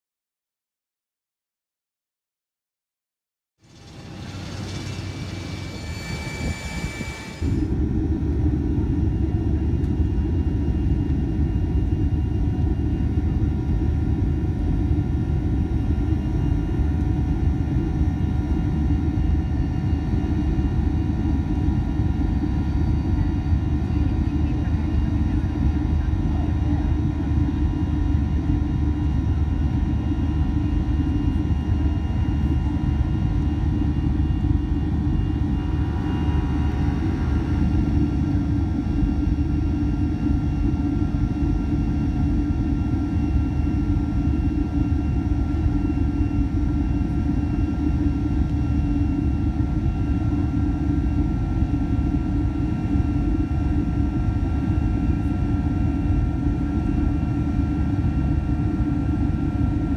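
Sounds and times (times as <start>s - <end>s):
jet engines roaring: 3.6s - 9.6s, 31.3s - 46.0s
faint engine whine: 3.6s - 59.9s.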